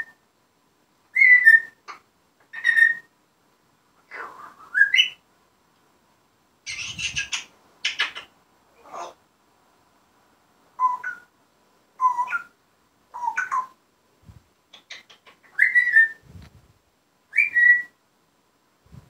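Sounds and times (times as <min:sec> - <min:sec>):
parrot whistling: 0:10.8 - 0:11.3, 0:15.0 - 0:16.2, 0:17.3 - 0:18.0.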